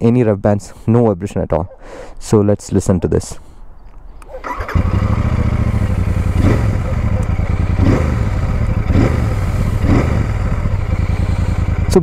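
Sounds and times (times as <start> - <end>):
motorcycle engine idling: 4.4 - 12.0.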